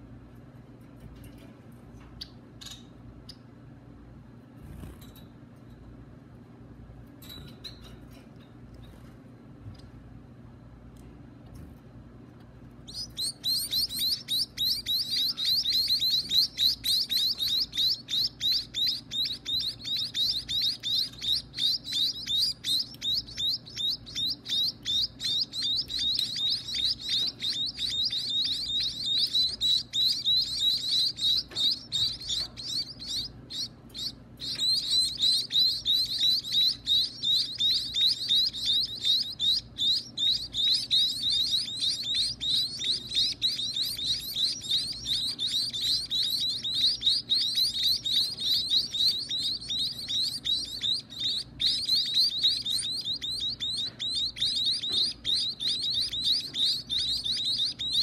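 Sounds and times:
nestling birds chirping: 12.4 - 58.0.

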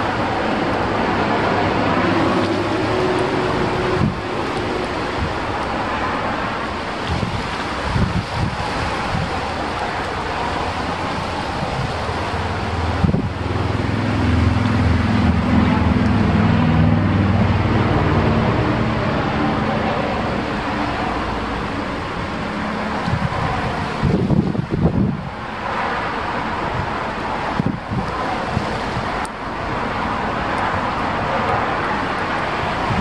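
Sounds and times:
engine hum passing: 0.0 - 33.0
wind buffeting microphone: 0.0 - 33.0.

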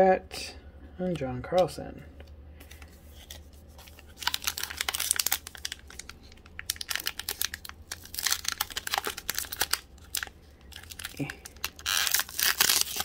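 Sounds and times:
foil wrapper crinkling: 2.8 - 13.0.

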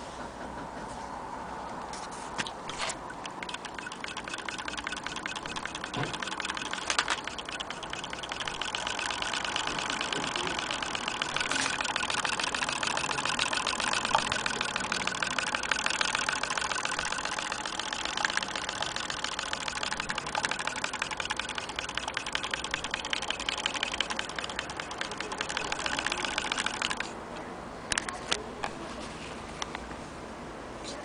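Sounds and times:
sharp clicks: 2.4 - 28.8
sewing machine running fast: 3.4 - 27.1.

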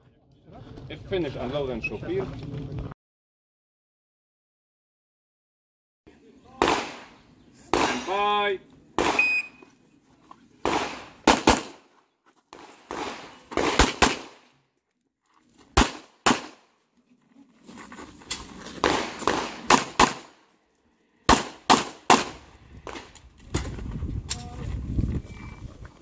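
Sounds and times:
pistol shots: 6.6 - 8.2, 9.0 - 9.5, 10.6 - 11.9, 12.6 - 14.5, 15.8 - 16.6, 18.8 - 20.4, 21.3 - 23.0.

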